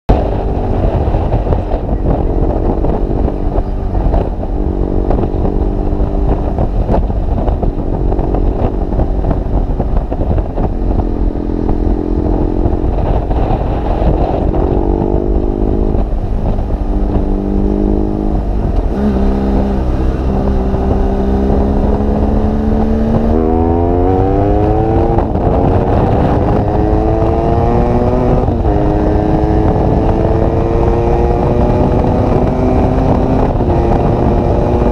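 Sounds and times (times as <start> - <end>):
motorcycle engine revving through gears: 0.1 - 34.9.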